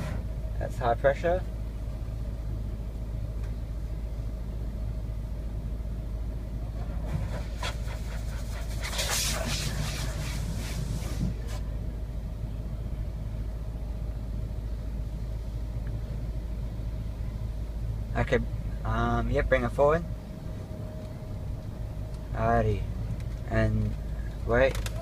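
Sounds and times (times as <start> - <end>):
car engine idling: 0.0 - 25.0
pressure washer spraying car: 7.0 - 11.6.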